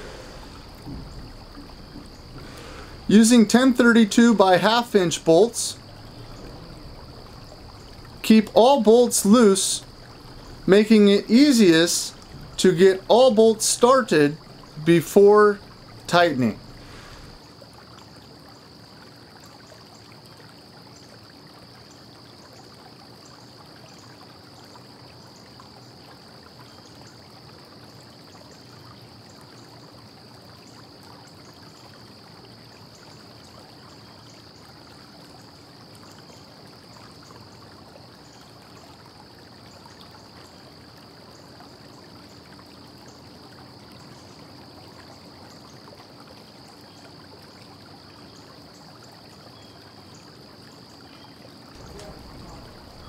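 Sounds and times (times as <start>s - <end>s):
light hum: 0.0s - 17.4s, 51.8s - 53.0s
faint high-pitched whine: 0.0s - 18.7s, 49.5s - 53.0s
low background hiss: 0.0s - 53.0s.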